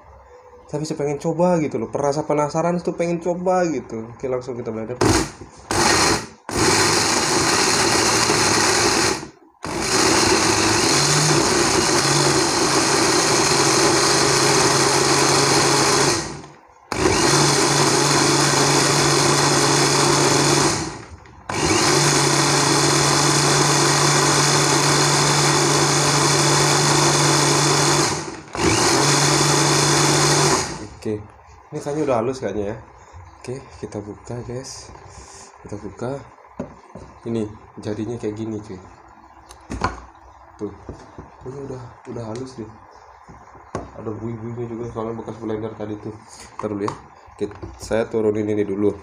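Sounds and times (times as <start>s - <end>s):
electric blender running: 5.0s - 30.9s.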